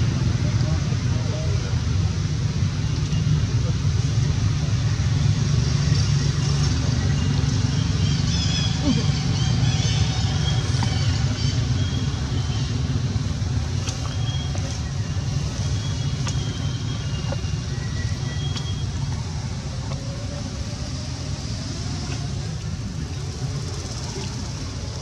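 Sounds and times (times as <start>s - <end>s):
low outdoor rumble: 0.0s - 25.0s.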